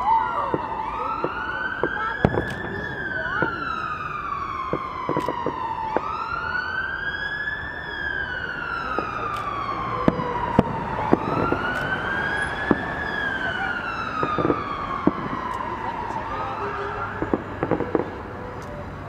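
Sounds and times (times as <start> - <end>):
emergency vehicle siren wailing: 0.0 - 19.0
firework bangs and cracks: 0.5 - 3.9, 4.6 - 6.2, 10.1 - 11.9, 14.2 - 15.6, 17.2 - 18.1.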